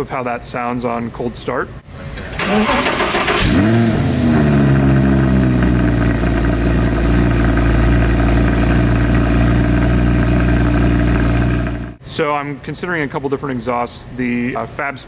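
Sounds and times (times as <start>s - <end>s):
car engine revving and idling: 2.2s - 12.0s.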